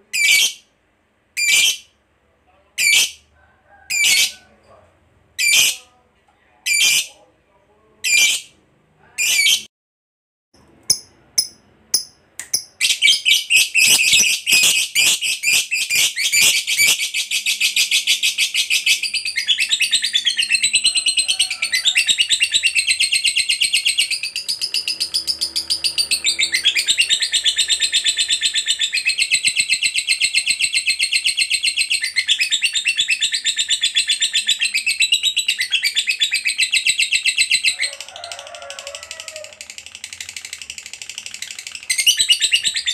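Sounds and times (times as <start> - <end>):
lovebird rapid chattering trill: 22.1 - 32.7.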